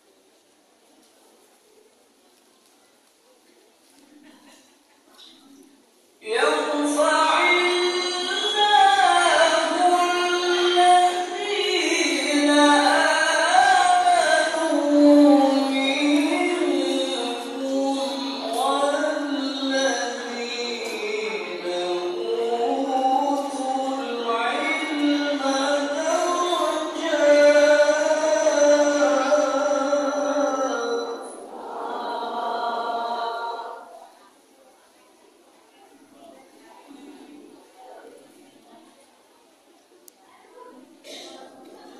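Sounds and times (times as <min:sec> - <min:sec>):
man chanting into a microphone: 0:06.2 - 0:33.8
man reciting melodically: 0:06.2 - 0:33.9.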